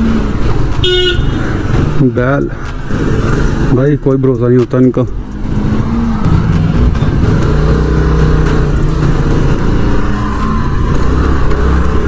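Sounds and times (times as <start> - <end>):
scooter engine running: 5.6 - 12.0.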